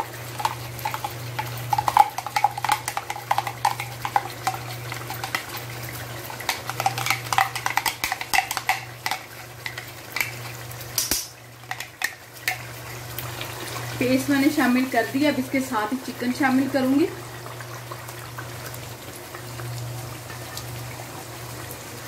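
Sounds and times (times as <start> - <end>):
frying sizzle in pan: 0.0 - 22.0
spoon scraping plastic jar: 6.4 - 10.4.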